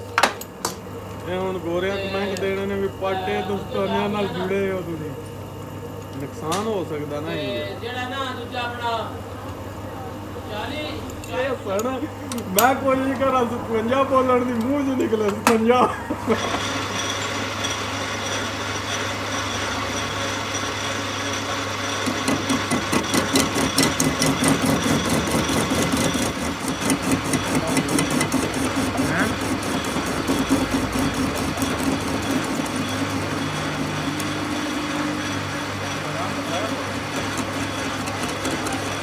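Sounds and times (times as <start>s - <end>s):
lathe motor hum: 0.0s - 39.0s
fast pulsing of cutting tool: 16.3s - 39.0s.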